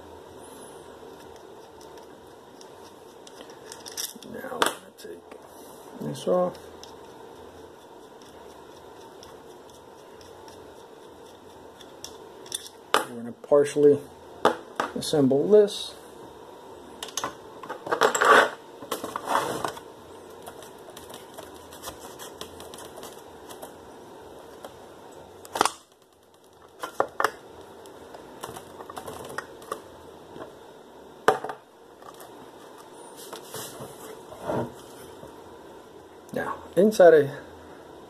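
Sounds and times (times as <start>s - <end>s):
metal parts rattling: 3.6s - 4.3s.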